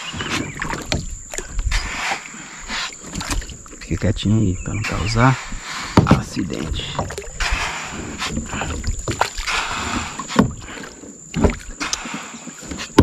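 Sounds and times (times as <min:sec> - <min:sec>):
kayak paddle dipping into water: 0:00.0 - 0:13.0
water rushing and splashing: 0:00.0 - 0:13.0.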